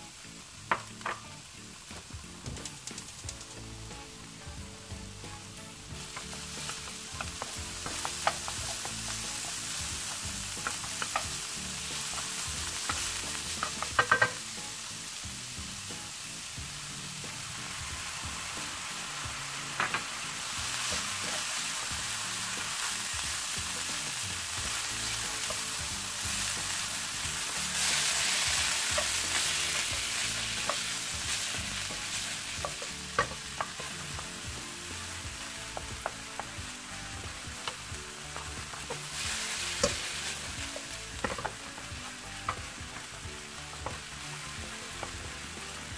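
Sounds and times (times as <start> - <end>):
meat sizzling in a frying pan: 0.0 - 45.9.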